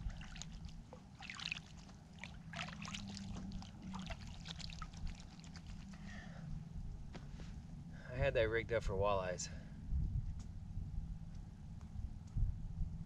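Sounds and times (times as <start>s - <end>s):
water splashing and trickling: 0.0s - 6.4s
steady low hum: 0.0s - 13.0s.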